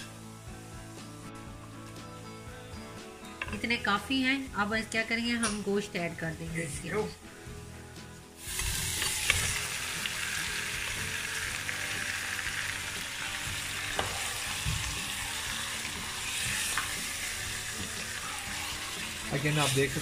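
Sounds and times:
meat sizzling in hot oil: 8.4 - 20.0.

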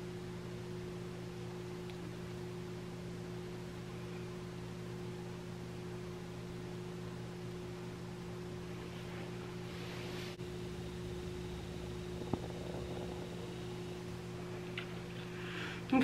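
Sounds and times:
low electrical hum: 0.0 - 16.0
constant hiss: 8.2 - 16.0
soft rustle: 8.8 - 10.4.

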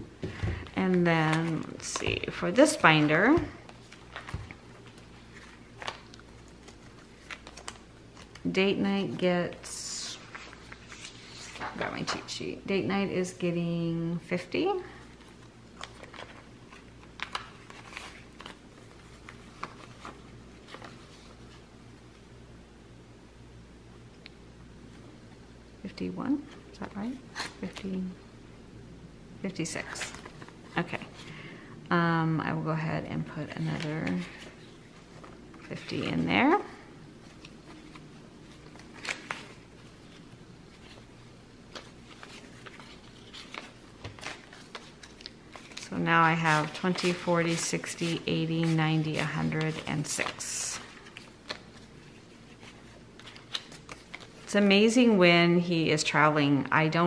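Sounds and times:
banknotes rustling: 33.3 - 55.0.

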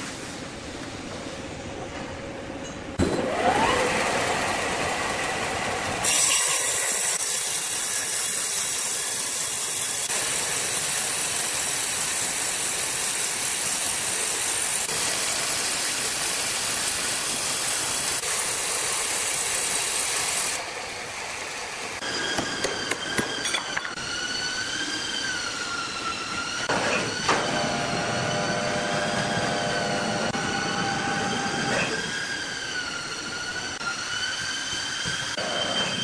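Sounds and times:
band saw cutting wood: 3.3 - 20.6.

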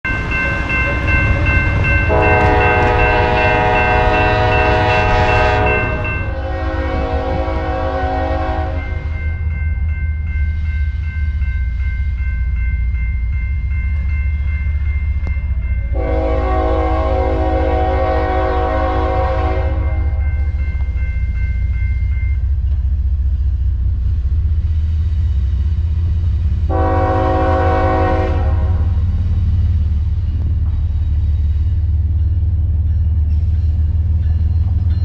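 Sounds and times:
freight train rumbling: 0.0 - 35.0
train horn blowing: 1.8 - 9.2, 15.9 - 20.3, 26.7 - 29.1.

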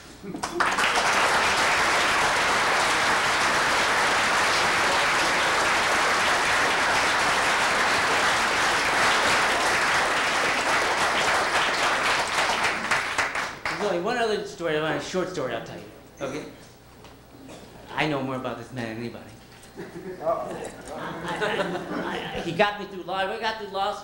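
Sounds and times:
audience applauding: 0.0 - 13.9.

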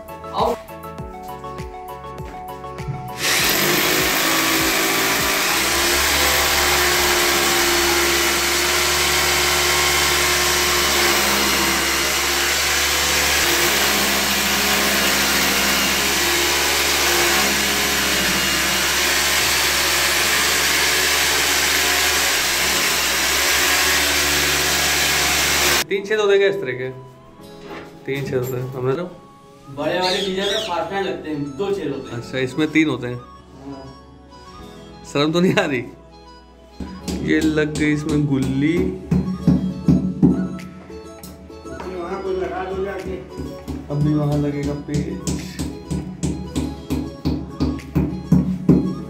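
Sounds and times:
electric drill boring into wall: 3.2 - 25.8.

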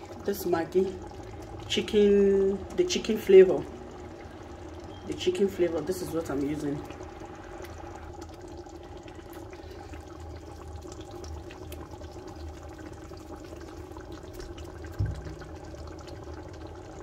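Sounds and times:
steady hum: 0.0 - 14.2
stew bubbling and crackling: 0.0 - 17.0
dull thump: 15.0 - 15.3.

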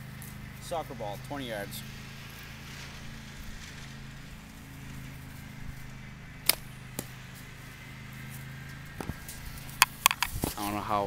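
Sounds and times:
slingbow bands snapping: 9.0 - 10.6.

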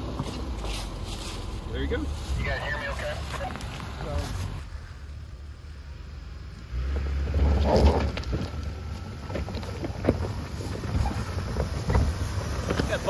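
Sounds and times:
tyres crunching over rocks: 0.0 - 4.6, 7.3 - 13.0
engine rumble: 0.0 - 13.0.

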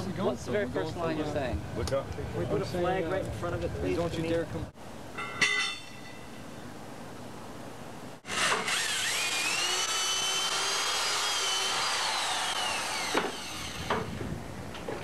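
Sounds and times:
electric drill motor whining: 8.2 - 14.0.

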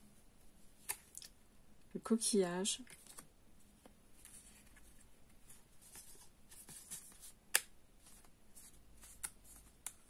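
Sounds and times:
cards rustling and sliding: 2.8 - 10.0.

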